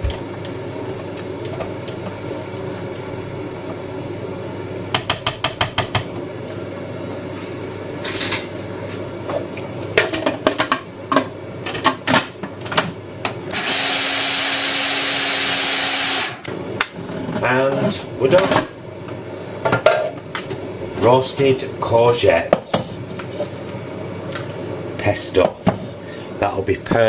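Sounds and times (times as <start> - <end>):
food processor motor humming: 13.5 - 16.5.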